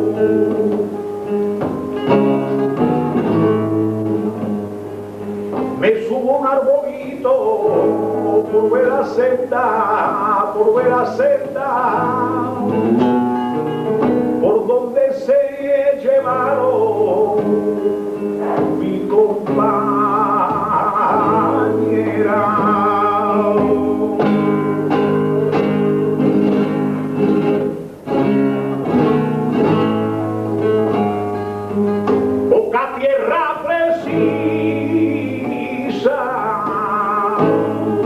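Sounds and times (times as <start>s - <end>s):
man singing: 0.0s - 1.0s, 5.6s - 13.1s, 14.4s - 26.3s, 32.1s - 38.0s
guitar plucked chords: 0.0s - 38.0s.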